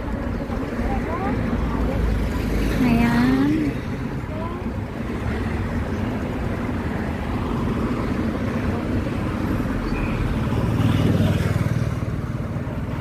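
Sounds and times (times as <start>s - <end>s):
truck passing: 0.0s - 13.0s.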